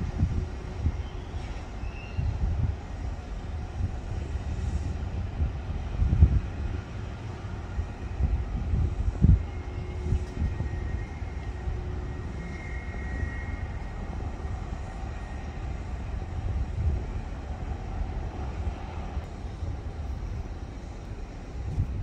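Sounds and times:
jet engines rumbling: 0:00.0 - 0:22.0
faint high whine: 0:07.3 - 0:22.0.

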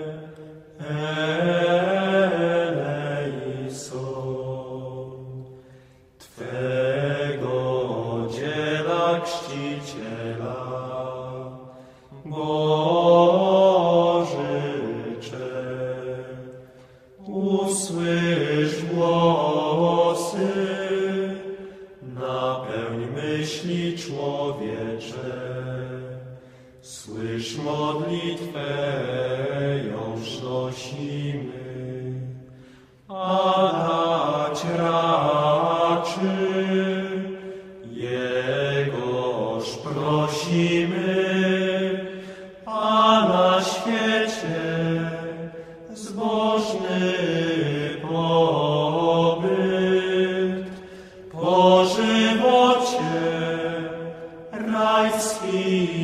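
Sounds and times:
low voice chanting: 0:06.2 - 0:32.5.

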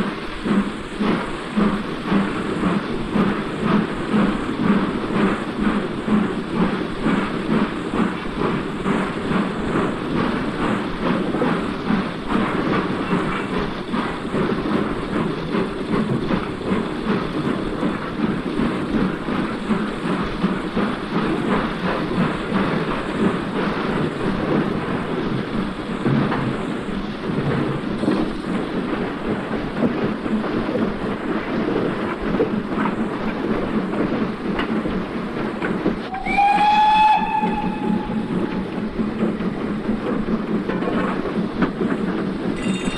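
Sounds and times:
wheels clicking over rail joints: 0:00.0 - 0:42.9
high-pitched train toot: 0:36.0 - 0:38.6.

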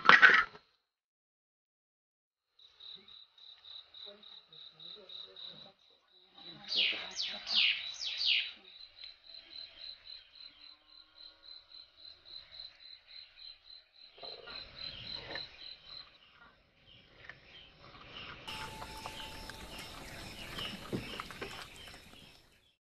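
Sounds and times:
crickets chirping: 0:02.5 - 0:22.7
loud falling calls: 0:18.5 - 0:22.5.

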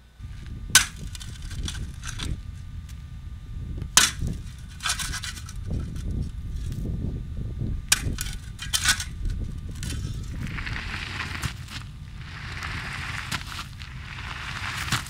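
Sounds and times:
low rumble: 0:00.2 - 0:15.0
digging tool striking hard ground: 0:00.7 - 0:02.3, 0:04.0 - 0:05.9, 0:07.9 - 0:09.1, 0:09.7 - 0:15.0.

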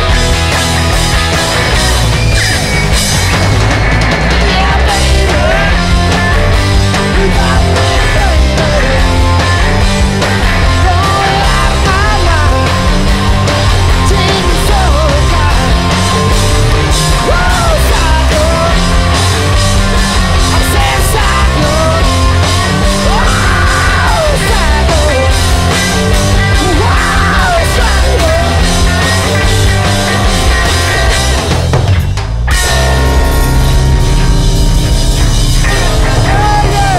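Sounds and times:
loud rock music: 0:00.0 - 0:36.9
person singing: 0:04.4 - 0:13.1, 0:13.8 - 0:16.3, 0:17.0 - 0:19.0, 0:20.5 - 0:29.0, 0:35.7 - 0:36.9.

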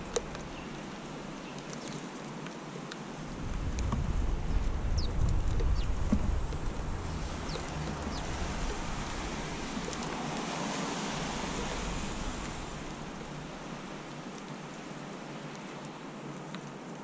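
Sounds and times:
low wind rumble: 0:00.0 - 0:01.7, 0:03.1 - 0:15.4
small birds chirping: 0:00.0 - 0:02.1, 0:04.5 - 0:06.2, 0:07.1 - 0:08.8
microphone hiss: 0:02.7 - 0:17.0.

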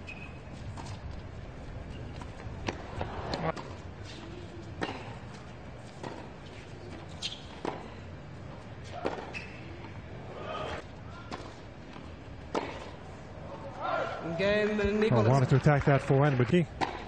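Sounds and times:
tennis ball struck by rackets: 0:02.6 - 0:03.8, 0:08.9 - 0:09.4, 0:12.5 - 0:13.0, 0:16.8 - 0:17.0
crowd hum: 0:02.6 - 0:16.0.

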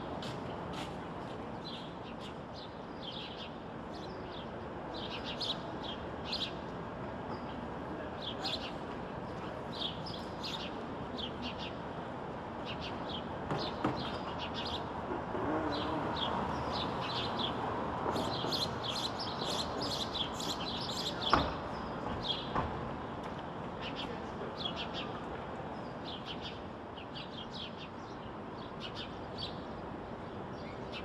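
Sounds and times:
sparrows chirping: 0:00.7 - 0:06.6, 0:07.3 - 0:11.9, 0:12.6 - 0:14.9, 0:15.7 - 0:22.6, 0:23.8 - 0:31.0.

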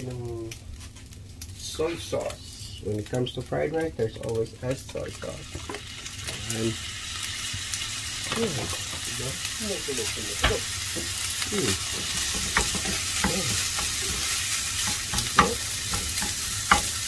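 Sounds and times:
fried rice sizzling in a pan: 0:00.0 - 0:17.0
spatula stirring and scraping: 0:10.4 - 0:17.0
spatula knocking against pan: 0:11.9 - 0:17.0.

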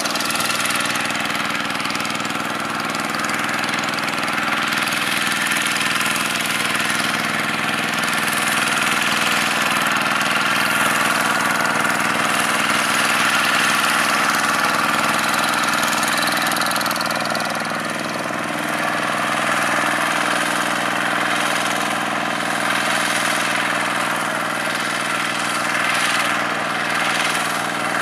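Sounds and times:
diesel engine running: 0:00.0 - 0:28.0.

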